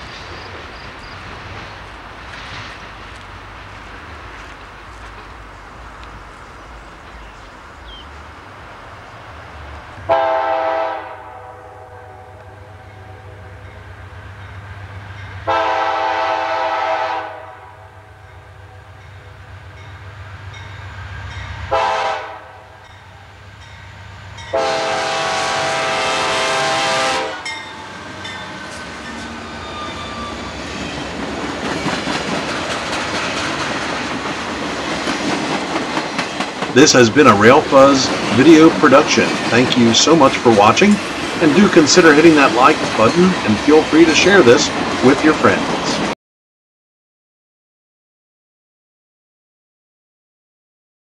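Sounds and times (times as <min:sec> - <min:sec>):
train wheel clatter: 0:00.0 - 0:05.4, 0:27.6 - 0:46.1
train rumble: 0:00.0 - 0:46.2
locomotive air horn blasts: 0:10.1 - 0:13.7, 0:15.4 - 0:18.8, 0:21.7 - 0:22.8, 0:24.5 - 0:27.6.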